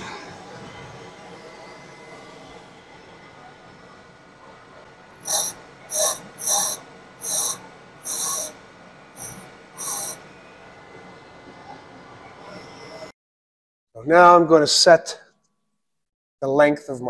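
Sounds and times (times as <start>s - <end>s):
steady machine hum: 0.0s - 13.1s
diamond dresser scratching grinding wheel: 5.2s - 10.3s.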